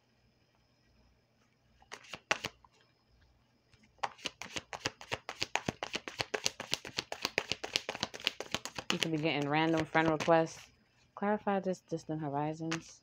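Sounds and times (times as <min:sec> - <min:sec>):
card snaps: 0:01.9 - 0:02.6
cards slapping while shuffled: 0:01.9 - 0:02.6, 0:04.0 - 0:10.6, 0:12.7 - 0:12.9.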